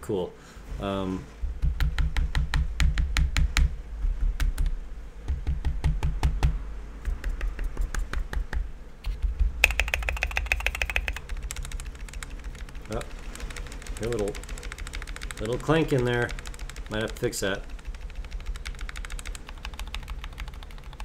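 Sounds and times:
mechanical keyboard typing: 9.1s - 21.0s.

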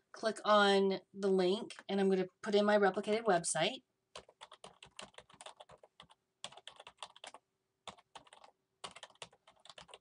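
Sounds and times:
typing on computer keyboard: 4.1s - 10.0s.

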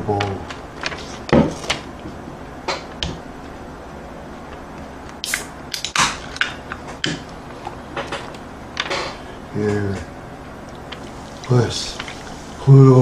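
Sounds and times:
can opening hiss: 5.2s - 5.8s.

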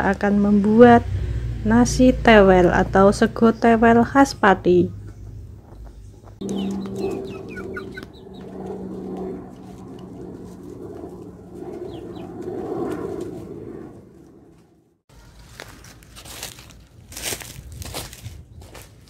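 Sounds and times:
steady low hum: 0.0s - 15.0s
high falling peeps: 4.4s - 12.5s
chickens clucking: 5.0s - 8.5s.

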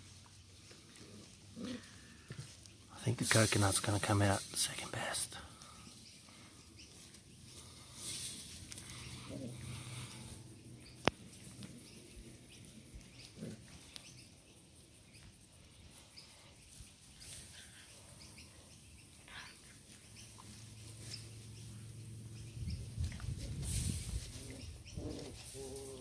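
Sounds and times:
puppies growling: 0.6s - 2.6s, 8.7s - 14.7s, 24.2s - 26.0s.

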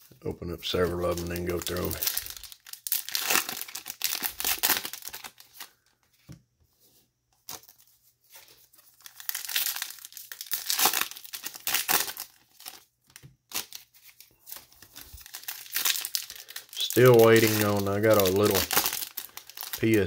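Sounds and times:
foil wrappers tearing and crinkling: 0.7s - 5.8s, 8.8s - 12.9s, 13.5s - 20.0s.

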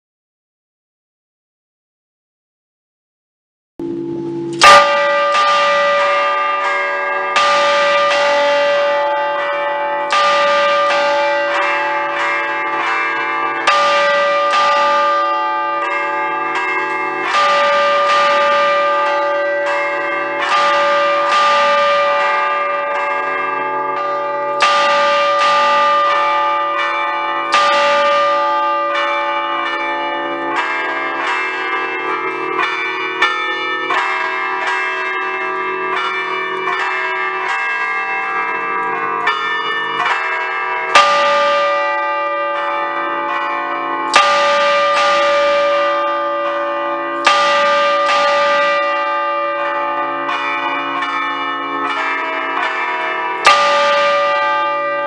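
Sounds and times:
loud bell stroke: 3.8s - 9.4s
church bells chiming: 3.8s - 55.0s.

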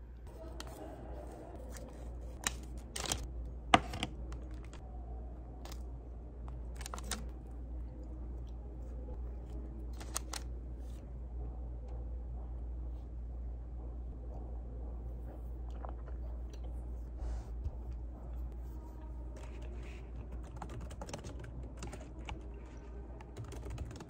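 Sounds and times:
steady low hum: 0.0s - 24.0s
foil and paper crinkling: 6.8s - 7.2s.

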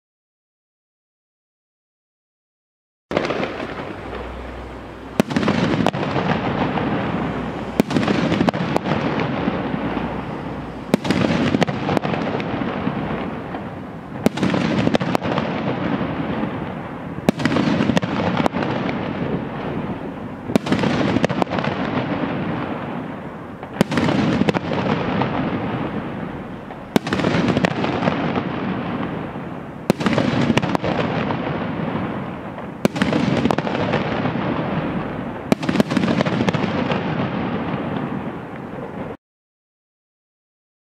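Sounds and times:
firework shells bursting: 3.1s - 19.8s.

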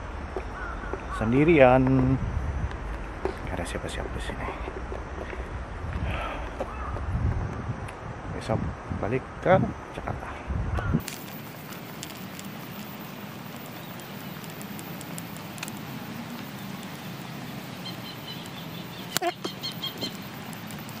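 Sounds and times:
low outdoor hum: 0.0s - 21.0s
small bird chirping: 10.9s - 21.0s.

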